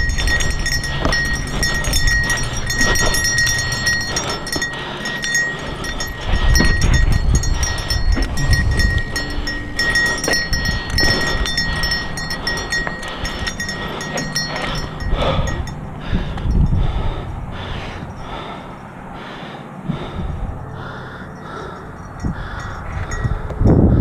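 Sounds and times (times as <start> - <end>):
bike rattling: 0.0 - 18.6.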